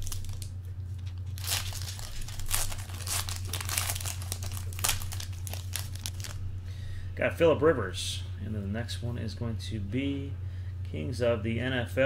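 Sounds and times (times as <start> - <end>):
foil wrapper tearing and crinkling: 0.0 - 6.4.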